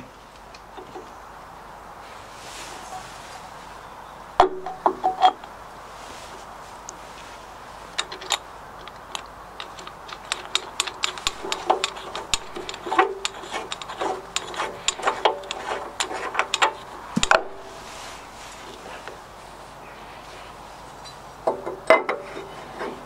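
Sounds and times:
metal clicks taps and scrapes: 4.4 - 5.6, 7.9 - 17.7, 21.0 - 23.0.

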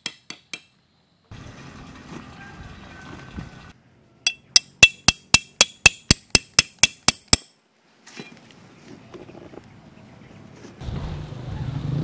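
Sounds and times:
hammer clinking on metal stake: 4.3 - 7.6.

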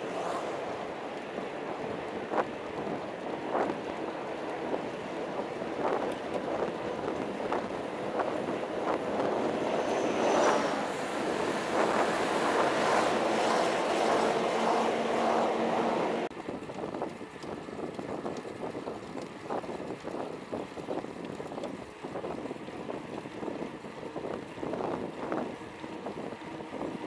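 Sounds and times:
road traffic: 0.0 - 16.5
wind rushing over microphone: 0.0 - 27.0.

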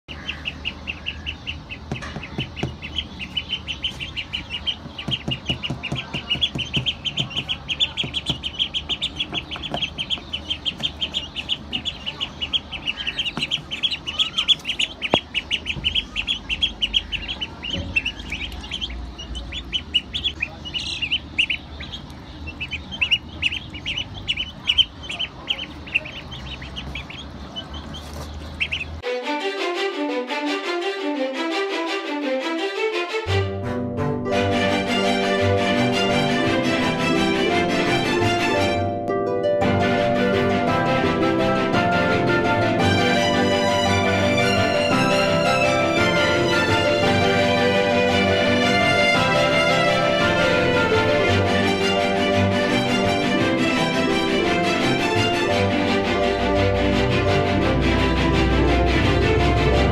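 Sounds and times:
ducklings and chick peeping: 0.1 - 29.0, 42.1 - 57.6.

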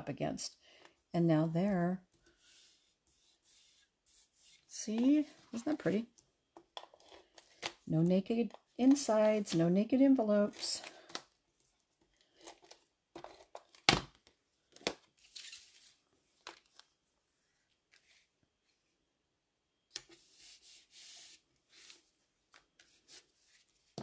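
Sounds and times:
card sliding across mat: 2.3 - 4.7, 20.1 - 22.1.

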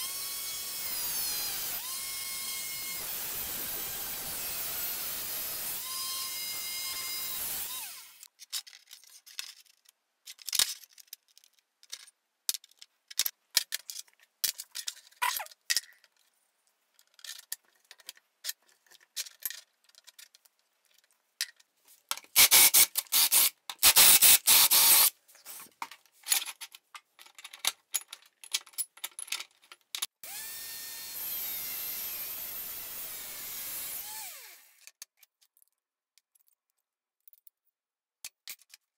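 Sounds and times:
angle grinder cutting steel: 0.0 - 8.3, 22.4 - 25.1, 30.2 - 34.8
loud rasping bursts: 0.0 - 8.3, 22.4 - 25.1.

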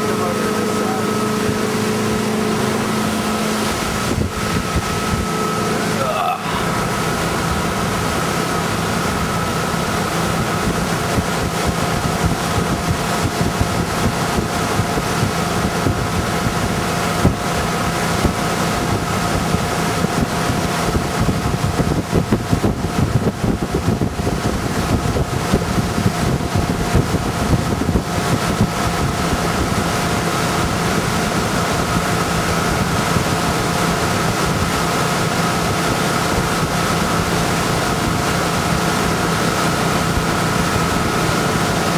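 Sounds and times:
wind buffeting microphone: 0.0 - 6.0, 6.6 - 41.9
boat engine running: 0.0 - 41.9
rushing wake water: 0.0 - 41.9.

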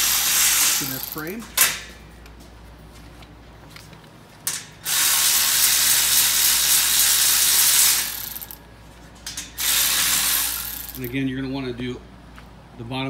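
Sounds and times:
electric ratchet whirring: 0.0 - 1.3, 4.8 - 8.6, 9.6 - 11.1.

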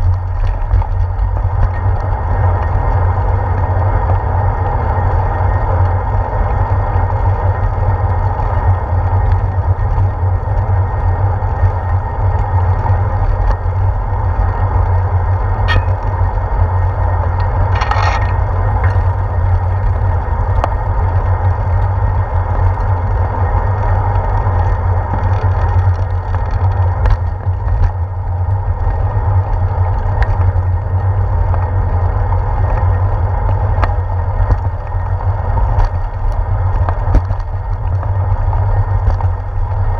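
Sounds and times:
wind and road rumble: 0.0 - 39.9
short rattle: 15.6 - 16.2, 17.6 - 19.2.

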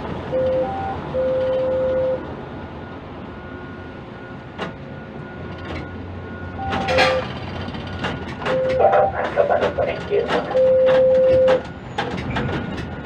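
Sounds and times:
crane machinery humming: 0.0 - 12.0
short beeps: 0.3 - 2.3, 6.3 - 7.3, 8.5 - 9.4, 10.5 - 11.6
electronic beep: 6.6 - 7.2, 8.5 - 9.3
metal knocks clattering: 6.6 - 8.9.

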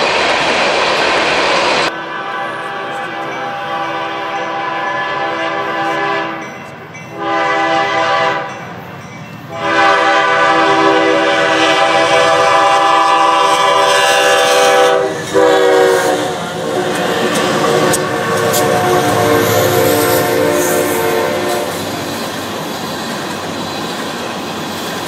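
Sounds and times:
train rumbling: 0.0 - 25.0
locomotive air horn blasts: 1.9 - 8.5, 9.5 - 22.0.

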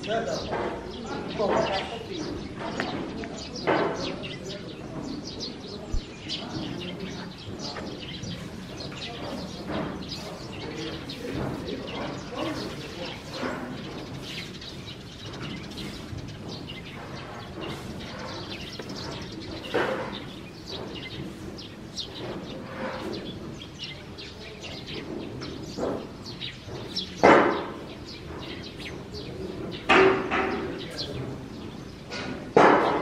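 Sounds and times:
small birds chirping: 0.0 - 33.0
shovel scooping grain: 14.1 - 14.9.

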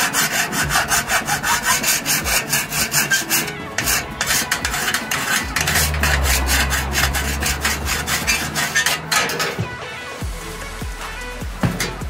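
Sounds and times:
file rasping on steel: 0.0 - 9.6.

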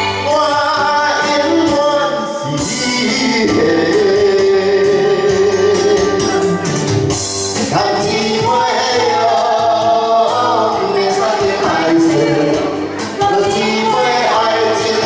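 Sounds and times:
man and woman singing duet: 0.0 - 6.7, 7.6 - 15.0
backing music with steady beat: 0.0 - 15.0.

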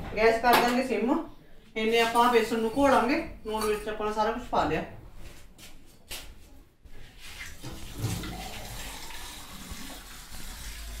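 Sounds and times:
water running from tap: 7.4 - 11.0.

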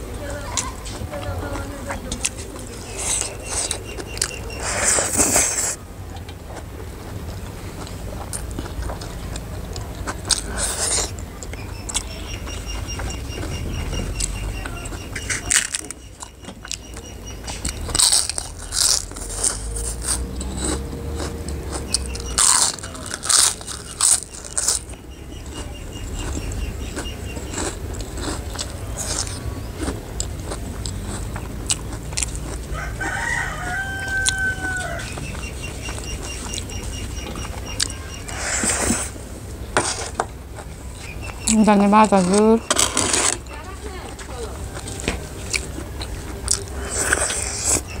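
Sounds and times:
crisp food crunching: 0.4 - 39.2, 39.8 - 48.0
rooster crowing: 32.7 - 35.2.

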